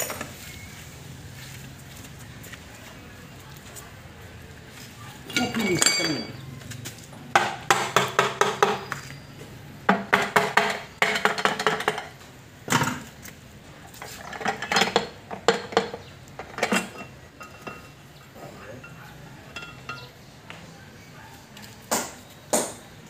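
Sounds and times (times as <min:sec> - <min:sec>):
metallic clinks and taps: 0:18.8 - 0:20.2.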